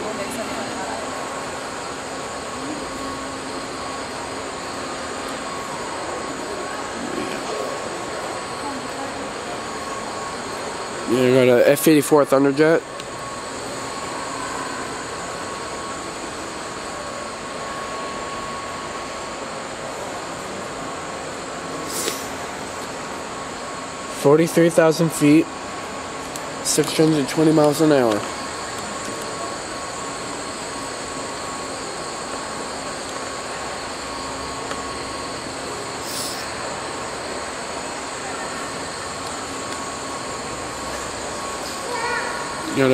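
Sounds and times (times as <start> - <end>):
faint thin whine: 0.0 - 42.9
hall hum and hiss: 0.0 - 42.9
ventilation rush: 0.0 - 42.9
brief hiss: 21.8 - 22.4, 36.0 - 36.5.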